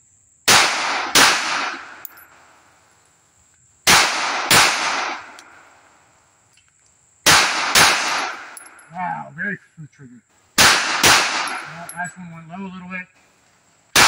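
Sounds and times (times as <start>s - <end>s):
pistol shots with echo: 0.5s - 2.2s, 3.9s - 5.6s, 7.3s - 8.8s, 10.6s - 12.1s.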